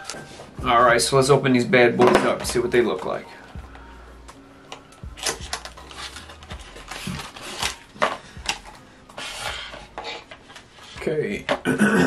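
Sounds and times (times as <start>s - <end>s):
packaging crinkling: 4.8s - 10.8s.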